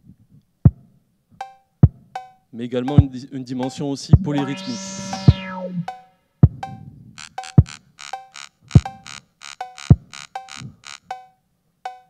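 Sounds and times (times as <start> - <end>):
short pitched blips: 4.2 - 6.0
low electronic thuds: 4.2 - 6.6.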